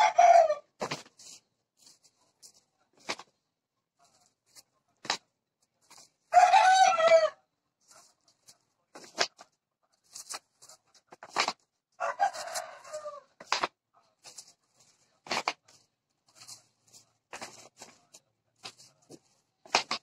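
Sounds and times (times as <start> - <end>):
rooster crowing: 0.0 - 0.6, 6.3 - 7.4, 12.0 - 13.3.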